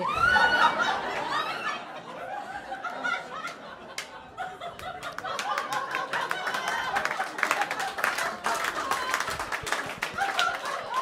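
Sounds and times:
audience laughing: 0.0 - 11.0
people clapping: 2.8 - 11.0.

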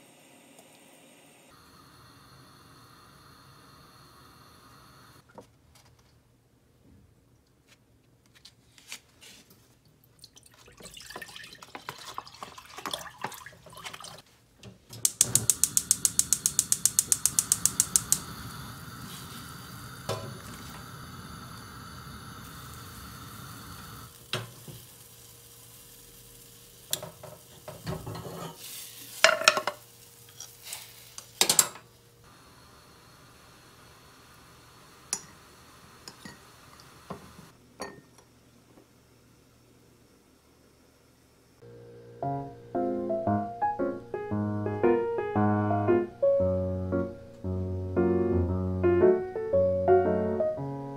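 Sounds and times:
gas flame hissing: 0.0 - 5.2, 14.9 - 37.6
gas igniter clicking: 15.0 - 21.7.

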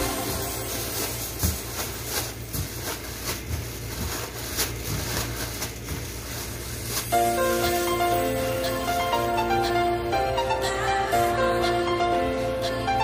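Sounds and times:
music: 0.0 - 2.2, 7.1 - 13.0
plastic bag crinkling: 0.0 - 9.3.

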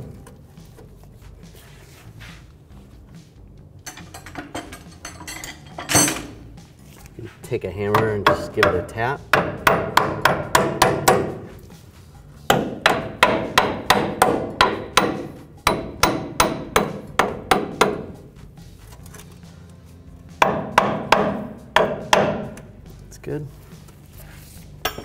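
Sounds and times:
hammer striking metal: 3.9 - 6.4, 7.8 - 11.5, 12.5 - 18.2, 20.4 - 22.7.

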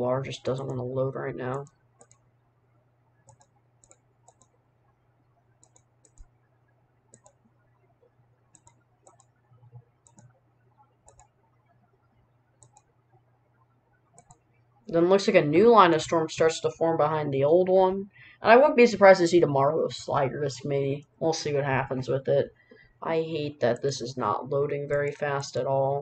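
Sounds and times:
low steady hum: 0.0 - 26.0
computer mouse clicks: 1.5 - 2.3, 3.2 - 4.6, 5.6 - 6.4, 7.1 - 7.4, 8.5 - 10.4, 11.0 - 11.4, 12.6 - 13.0, 14.1 - 14.6.

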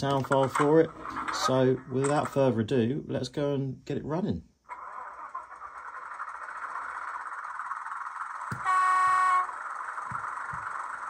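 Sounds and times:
model diesel engine sound: 4.7 - 11.0
horn blast: 8.6 - 9.6.

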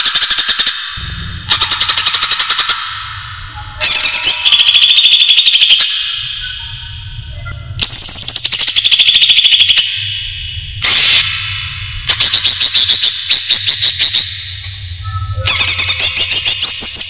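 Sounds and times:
low hum: 0.8 - 4.5, 6.0 - 8.9, 9.7 - 16.7.

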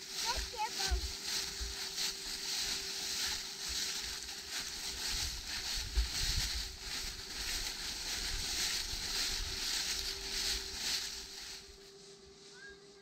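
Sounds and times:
footsteps crunching dry leaves: 0.0 - 13.0
wind rumbling on microphone: 4.8 - 11.0.

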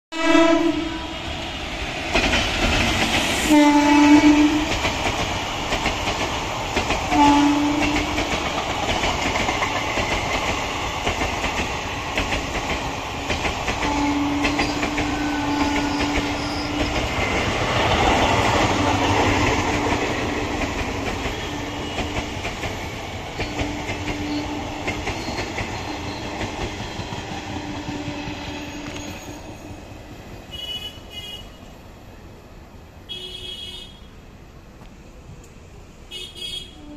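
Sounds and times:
train horn: 0.1 - 1.2, 3.5 - 4.8, 7.1 - 8.2, 13.8 - 17.0, 21.2 - 22.3, 27.6 - 29.6, 30.5 - 31.6, 33.1 - 34.0, 36.1 - 36.9
train wheels clattering: 1.9 - 29.7.

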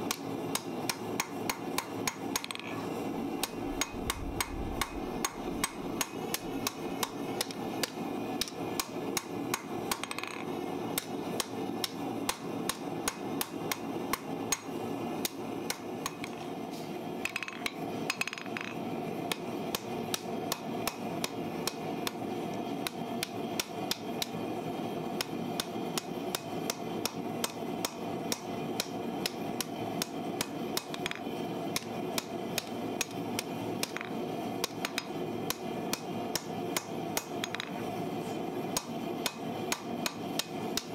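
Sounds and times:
hammer striking hot steel on anvil: 0.1 - 2.6, 3.4 - 10.3, 11.0 - 16.3, 25.2 - 31.2, 31.8 - 37.8, 38.7 - 40.9.

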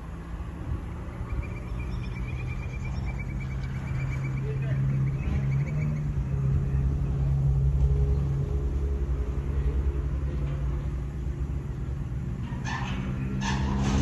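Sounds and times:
diesel locomotive engine rumbling: 0.0 - 14.0.

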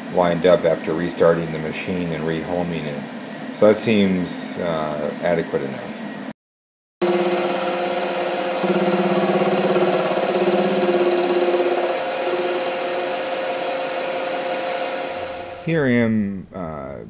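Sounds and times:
milling machine motor whine: 7.0 - 15.6.

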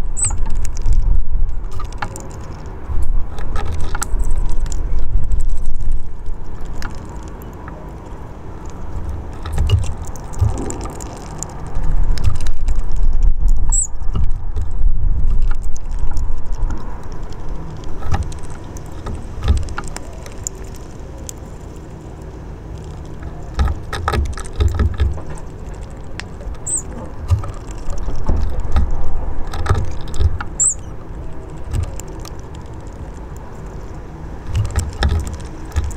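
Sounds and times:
low rumble: 0.0 - 6.8, 8.8 - 20.3
high bird chirp: 0.2 - 0.4, 13.7 - 13.9, 26.6 - 26.9, 30.6 - 30.9.

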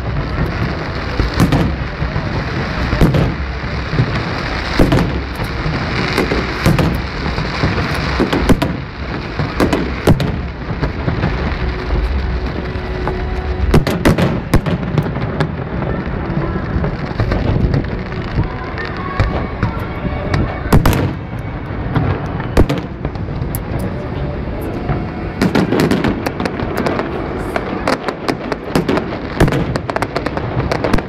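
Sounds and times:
fireworks bursting with bangs: 0.0 - 31.0.

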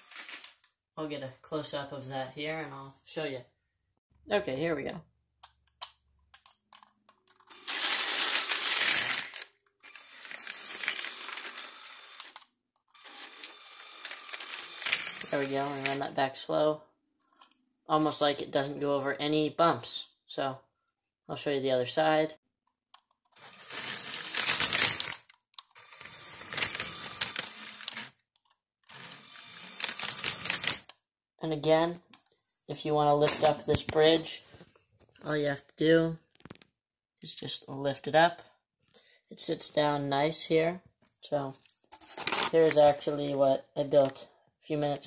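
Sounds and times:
toy train wheels rattling on track: 7.4 - 12.4, 13.0 - 16.1.

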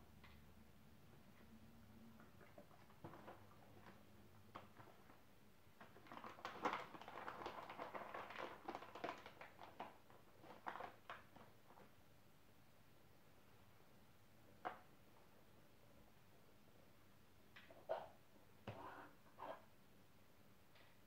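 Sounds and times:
paper bag crinkling: 5.8 - 11.8.

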